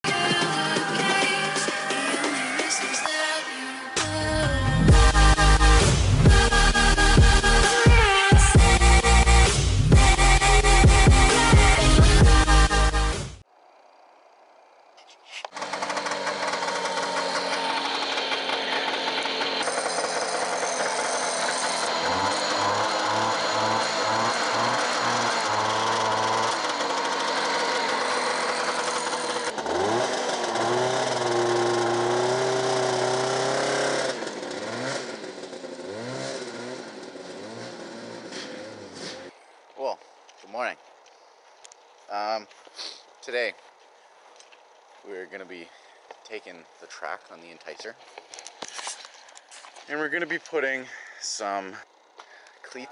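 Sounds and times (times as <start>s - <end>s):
snowmobile engine revving: 4.0s - 13.3s, 15.5s - 39.4s.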